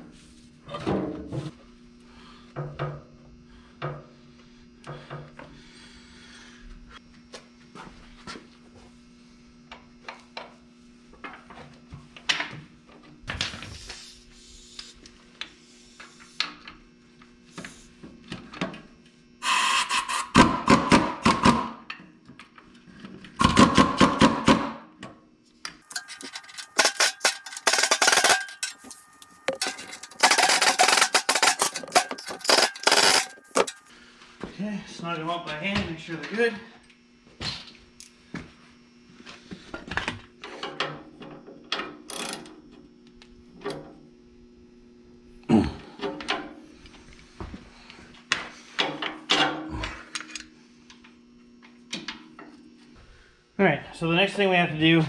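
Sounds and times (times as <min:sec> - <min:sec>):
ratchet wrench ratcheting: 0:25.9 - 0:33.8.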